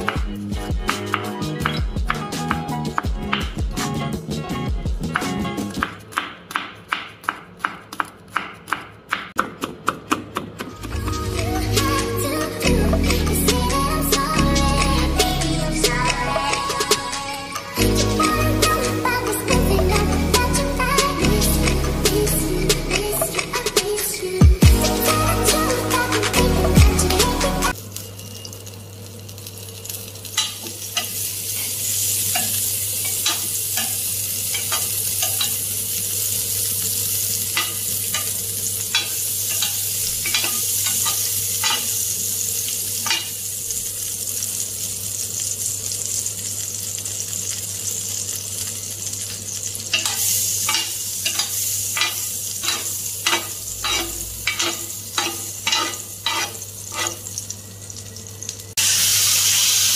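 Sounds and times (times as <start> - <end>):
butter sizzling in pan: 27.7 - 59.9
metal spoon scraping pan ridges: 49.9 - 57.3.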